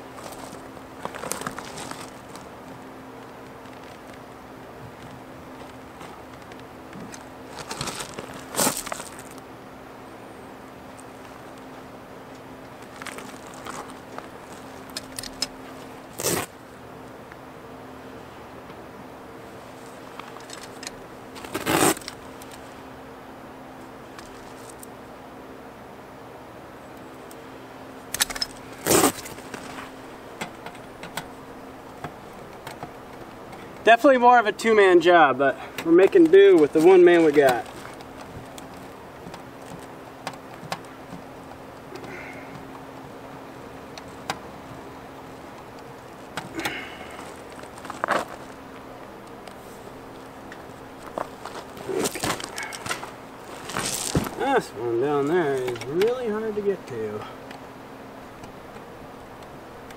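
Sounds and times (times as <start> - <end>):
crunch of gravel stones: 0.0 - 4.3, 4.9 - 9.5, 12.6 - 16.6, 19.5 - 22.7, 28.2 - 30.2, 35.9 - 40.5, 45.4 - 55.8
faint steady hum: 0.0 - 59.9.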